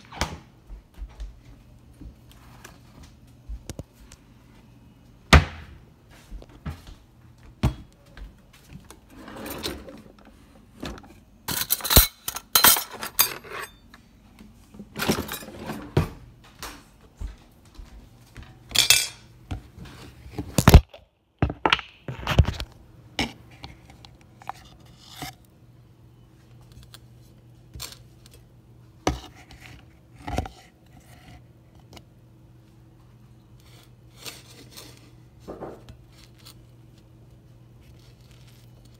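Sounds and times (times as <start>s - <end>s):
faint low hum: 0.0s - 38.9s
plate and utensils clinking: 18.7s - 19.3s.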